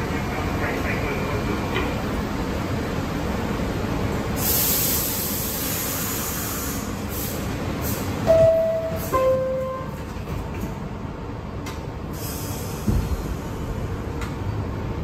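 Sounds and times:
subway car rumble: 0:00.0 - 0:15.0
air hiss: 0:04.4 - 0:08.1, 0:12.1 - 0:13.6
two-tone door chime: 0:08.3 - 0:09.9.

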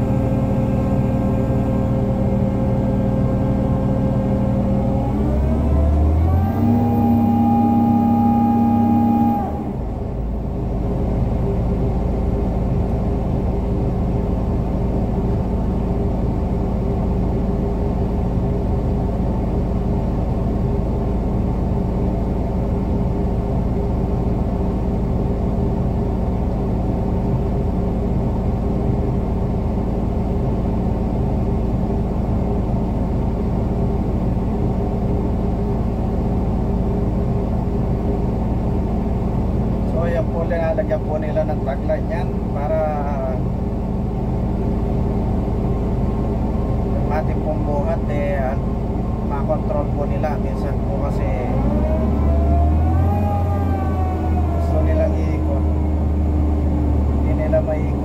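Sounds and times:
crane engine revving: 0:00.0 - 0:13.5, 0:49.9 - 0:58.0.

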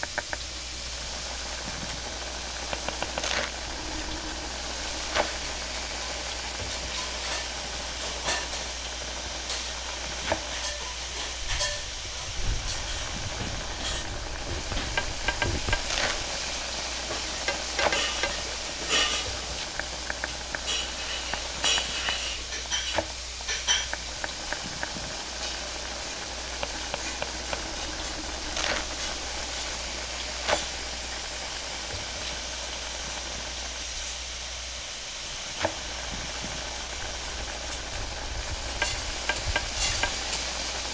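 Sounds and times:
griddle frying hiss: 0:00.0 - 0:40.9
spatula scraping on griddle: 0:09.4 - 0:29.8.

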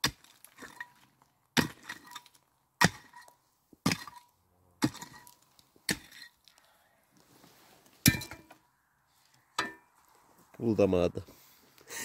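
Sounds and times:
pickaxe striking stony gravel: 0:00.0 - 0:01.0, 0:01.6 - 0:06.4, 0:08.0 - 0:08.5.

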